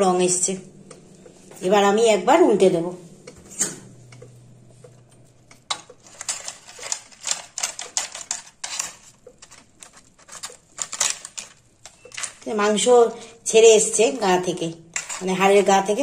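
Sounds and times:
fork clicking and scraping in basket: 3.3s - 12.5s, 13.9s - 16.0s.

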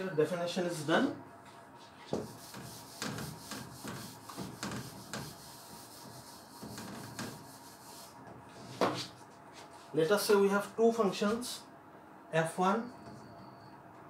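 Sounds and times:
eraser wiping a whiteboard: 1.8s - 10.0s.

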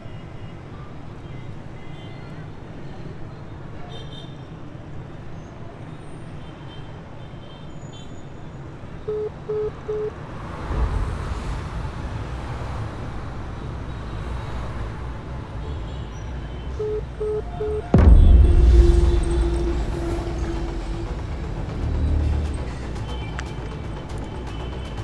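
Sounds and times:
street traffic rumble: 0.0s - 25.0s
phone short beeps: 9.1s - 10.1s, 16.8s - 17.9s.

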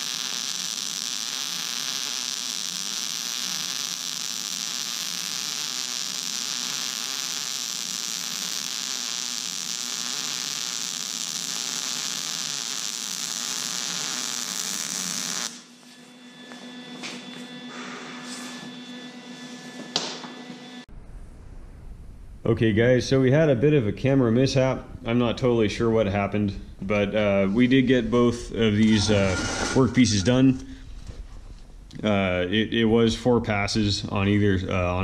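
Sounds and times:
welding arc buzzing: 0.0s - 20.9s.

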